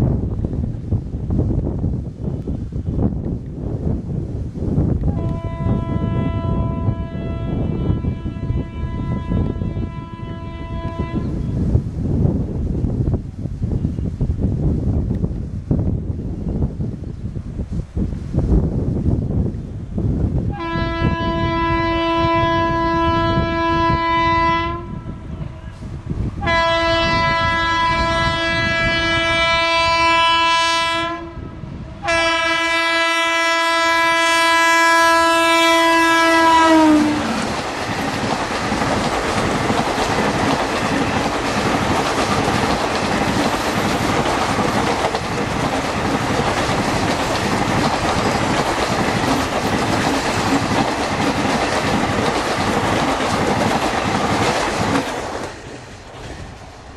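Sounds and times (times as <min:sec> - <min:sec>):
locomotive horn blasts: 0:05.1 - 0:11.6, 0:20.5 - 0:37.4
train coaches passing: 0:31.7 - 0:56.9
wheels clacking over rail joints: 0:37.0 - 0:56.8.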